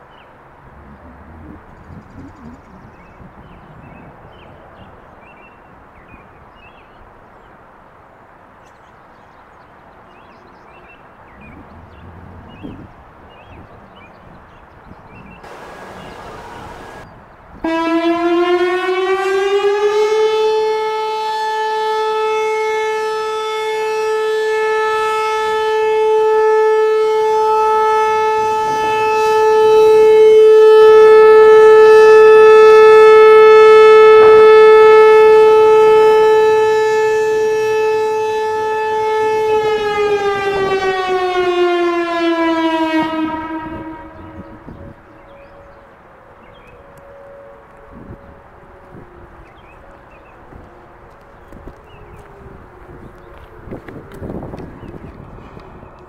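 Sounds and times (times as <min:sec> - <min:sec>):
electronic warning siren: 0:15.4 - 0:17.0, 0:17.6 - 0:45.9.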